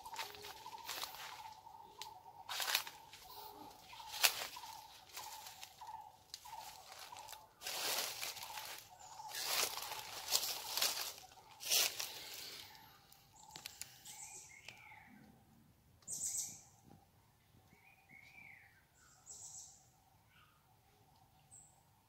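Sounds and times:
footsteps crunching dry leaves: 0.0 - 13.8.

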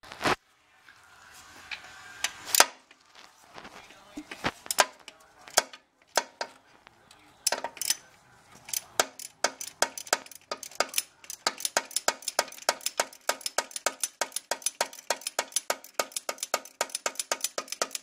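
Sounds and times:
socket ratchet clicking: 4.7 - 6.5, 7.5 - 8.0, 8.7 - 18.0.

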